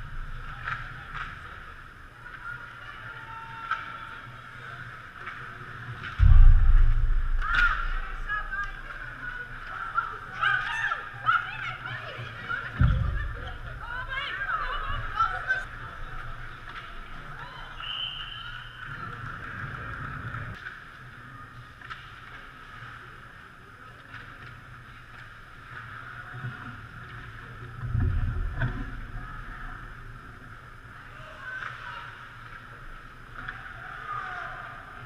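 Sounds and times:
heavy low thud: 6.2s - 8.3s.

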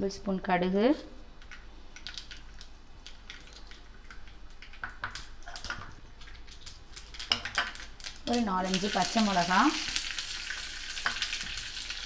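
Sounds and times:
seeds sizzling and popping in oil: 1.4s - 12.0s.

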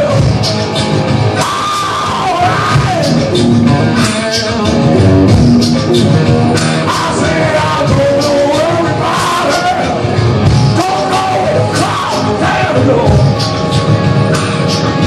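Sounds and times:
punk rock band playing: 0.0s - 15.0s
shouted sung vocals: 6.8s - 10.1s, 10.7s - 13.4s.

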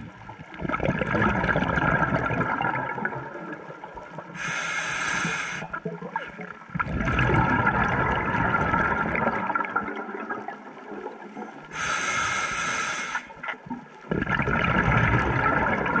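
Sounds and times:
exhaled bubbles gurgling: 0.0s - 16.0s
hissing regulator inhalation: 4.4s - 5.8s, 11.7s - 13.4s.

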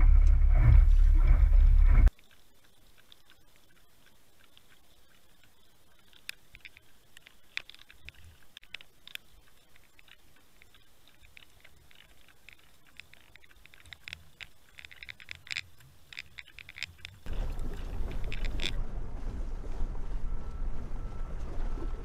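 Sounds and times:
light clicks underwater: 2.0s - 18.8s
wind buffeting microphone: 17.2s - 22.0s.

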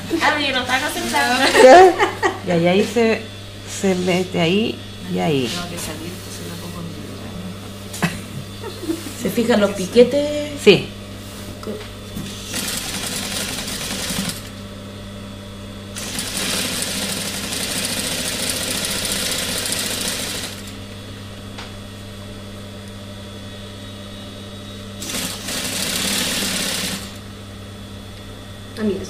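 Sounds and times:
steady low hum: 0.0s - 29.0s
sewing machine stitching: 12.5s - 14.5s, 16.0s - 20.7s, 25.0s - 27.2s.

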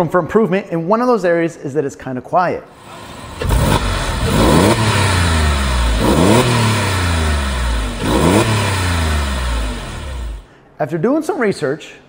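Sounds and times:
car engine revving and idling: 2.8s - 10.5s.

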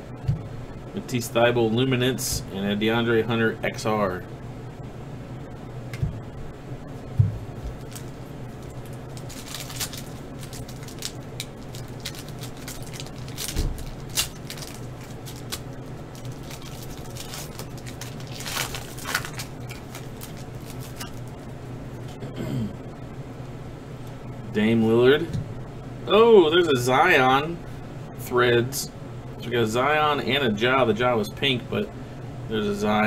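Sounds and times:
steady low hum: 0.0s - 33.0s
cards being handled: 7.7s - 21.4s
foil pack crinkling and tearing: 7.7s - 21.5s.

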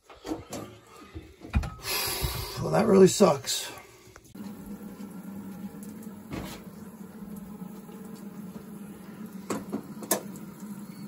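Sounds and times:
low steady hum: 3.7s - 11.0s.

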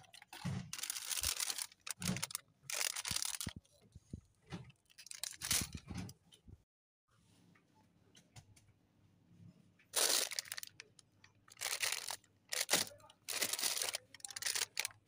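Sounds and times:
plastic wrappers crinkling: 0.0s - 3.6s, 4.8s - 5.9s, 10.0s - 15.0s.

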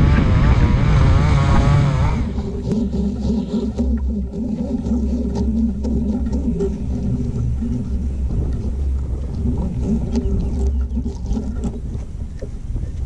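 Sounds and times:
strong wind on microphone: 0.0s - 5.2s
steady engine-like hum: 0.0s - 13.0s.

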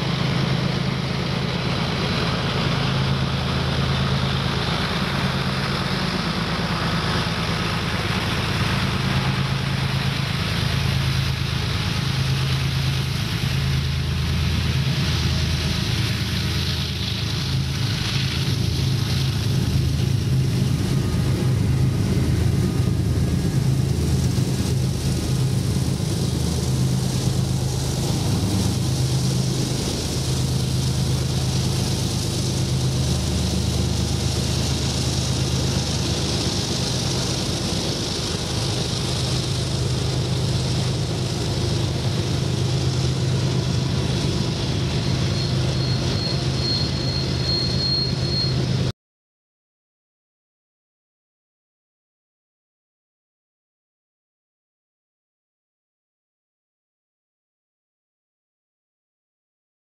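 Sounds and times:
low drone: 0.0s - 48.9s
train wheels rumbling on rails: 0.0s - 48.9s
high wheel squeal: 42.3s - 48.9s.

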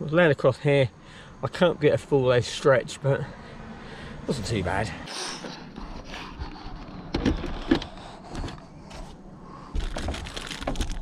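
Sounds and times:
rustling: 6.0s - 11.0s
clicks and knocks inside car: 6.4s - 11.0s.

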